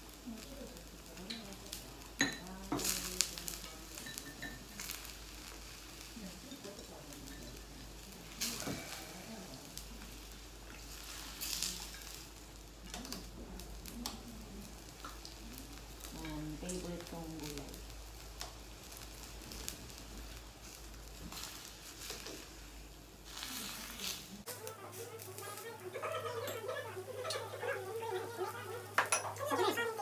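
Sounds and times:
hot pot simmering hiss: 0.0s - 30.0s
tableware clinking against bowls: 2.2s - 2.9s, 4.0s - 4.8s, 29.0s - 29.8s.

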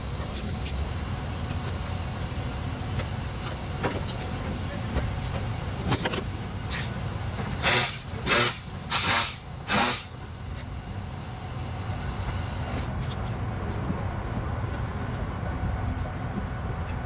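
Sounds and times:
steady low rumble: 0.0s - 17.0s
short noisy tool bursts: 7.6s - 10.2s.

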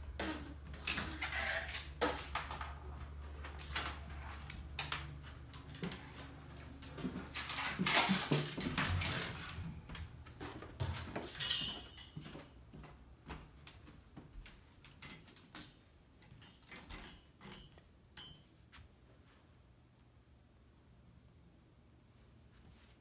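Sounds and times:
stick scraping on wooden floor: 0.5s - 2.8s.

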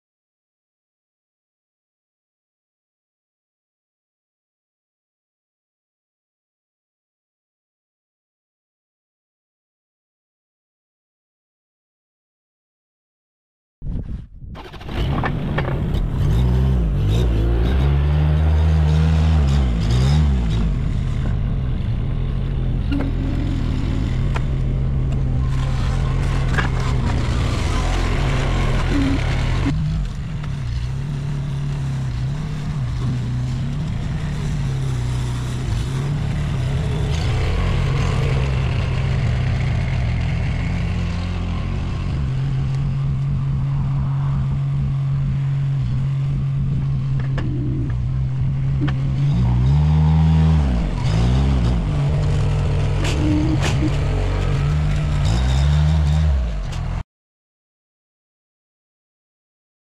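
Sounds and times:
loader engine running: 14.6s - 43.8s, 45.4s - 57.0s.

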